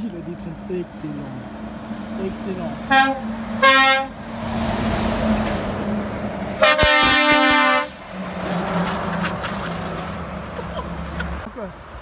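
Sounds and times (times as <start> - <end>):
heavy trucks passing: 0.0 - 12.0
truck air horn blast: 2.9 - 4.2, 6.6 - 8.0.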